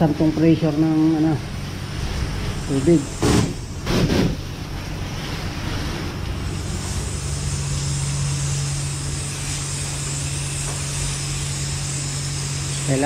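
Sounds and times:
steady low hum: 0.0 - 13.0
spray wand hissing: 6.5 - 13.0.

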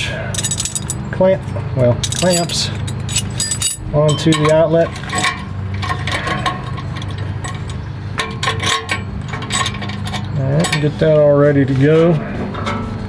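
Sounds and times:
steady low hum: 0.0 - 13.0
metal clamps clinking: 0.3 - 1.2, 2.0 - 10.9.

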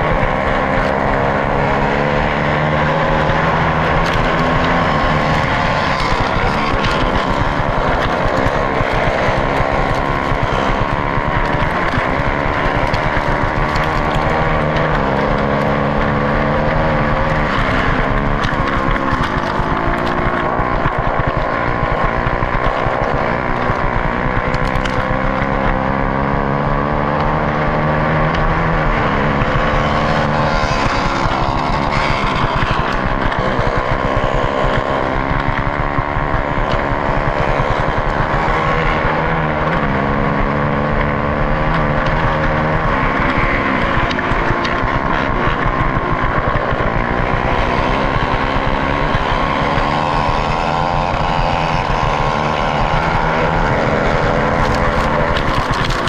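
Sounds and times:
dirt bike engine racing: 0.0 - 56.0
other motorbikes running nearby: 0.0 - 56.0
wind rushing over helmet camera: 0.0 - 56.0.

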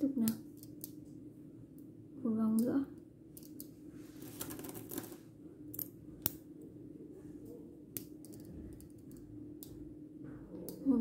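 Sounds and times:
faint steady hum: 0.0 - 11.0
magnet balls clicking together: 0.2 - 1.0, 3.4 - 3.7, 8.0 - 9.8.

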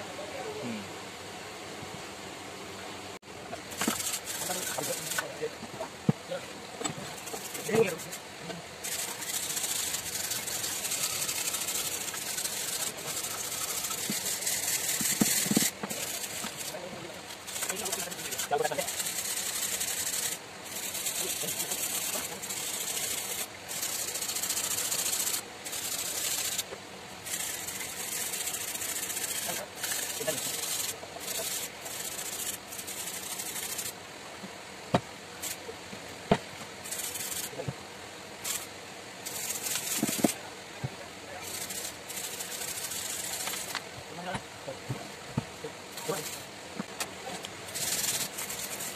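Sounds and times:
wire brush scraping rusty metal: 3.6 - 5.6, 6.8 - 34.0, 35.4 - 35.6, 36.8 - 37.7, 38.4 - 40.4, 41.4 - 44.3, 45.9 - 46.6, 47.7 - 48.9.

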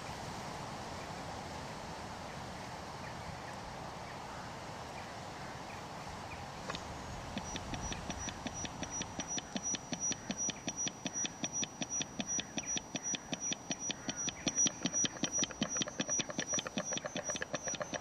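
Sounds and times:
regular train of clicks: 7.4 - 18.0
thin high steady tone: 7.4 - 18.0.

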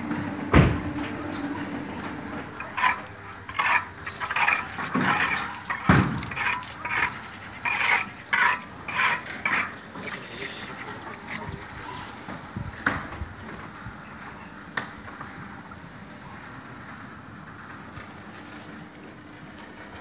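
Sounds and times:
garage door scraping in tracks: 0.0 - 12.6.

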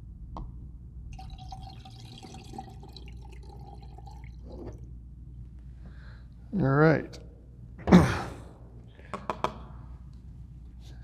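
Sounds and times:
liquid pouring through funnel: 1.1 - 4.9.

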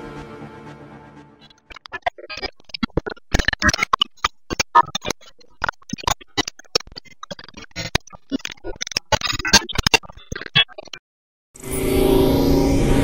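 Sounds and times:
electronic glitch clicks and static: 1.4 - 11.0.

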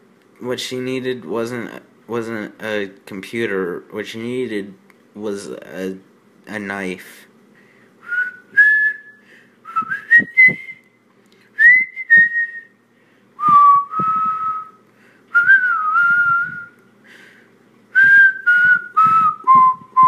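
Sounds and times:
person whistling a tune: 8.0 - 10.9, 11.6 - 12.8, 13.4 - 16.8, 18.0 - 20.0.

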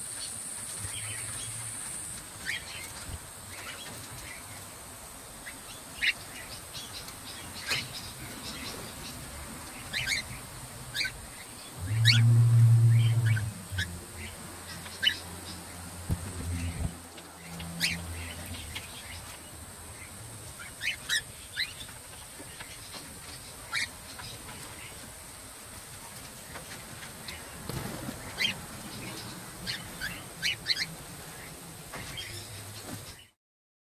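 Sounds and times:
steady hiss: 0.0 - 33.3
cockatiels chirping: 9.9 - 10.4, 17.8 - 19.3, 22.6 - 25.0, 28.4 - 32.5
low hum: 11.6 - 18.8.

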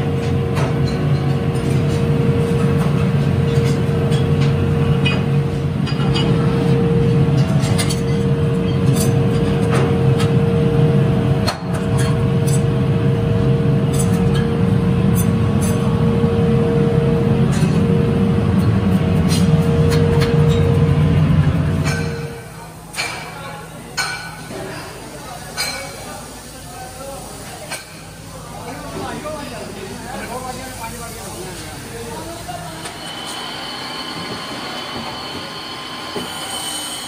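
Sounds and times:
constant machine whine: 0.0 - 23.7, 29.8 - 37.0
low machinery hum: 0.0 - 24.0.

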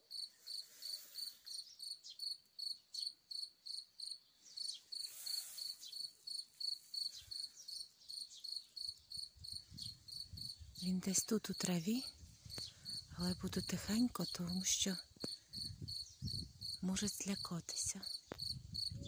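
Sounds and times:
cricket chirping: 0.1 - 10.6, 12.2 - 13.7, 15.2 - 16.8.

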